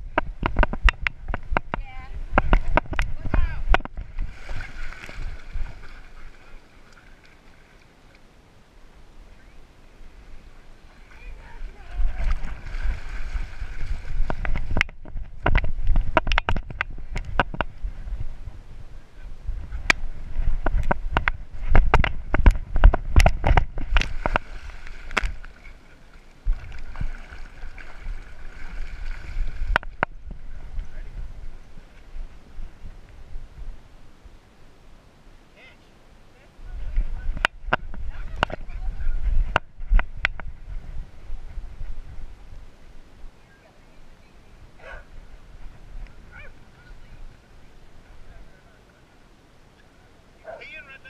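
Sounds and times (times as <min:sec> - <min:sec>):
water sloshing and gurgling: 0:00.0 - 0:08.0, 0:10.4 - 0:18.2, 0:20.1 - 0:30.9.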